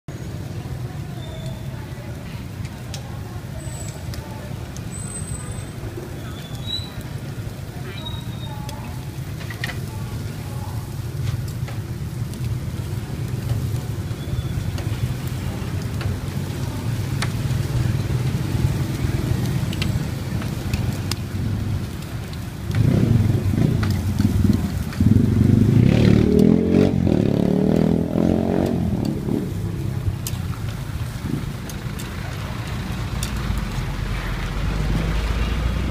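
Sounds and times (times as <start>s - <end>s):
low rumble of street traffic: 0.1s - 35.9s
vehicle engine running close: 8.8s - 35.9s
faint clicks: 13.2s - 21.3s, 30.0s - 34.5s.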